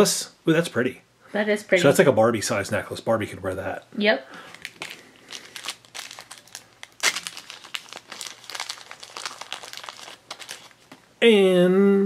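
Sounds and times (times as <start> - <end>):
wrapper crinkling and tearing: 4.4 - 11.0.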